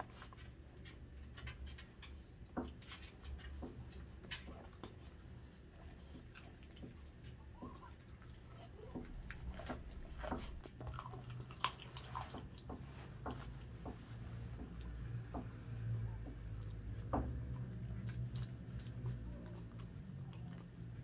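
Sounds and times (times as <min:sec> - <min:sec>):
dog chewing raw meat: 0:03.5 - 0:21.0.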